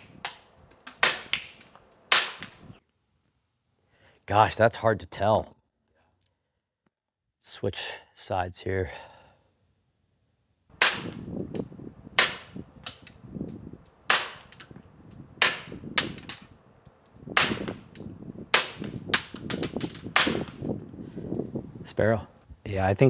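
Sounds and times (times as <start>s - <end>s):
suppressed pistol shots: 10.8s - 11.3s, 18.6s - 20.7s.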